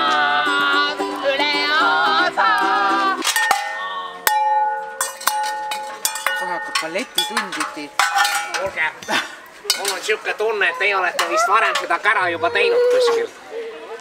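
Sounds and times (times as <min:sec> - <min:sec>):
metal clangs with ringing tones: 0:03.3 - 0:08.9, 0:09.7 - 0:10.3.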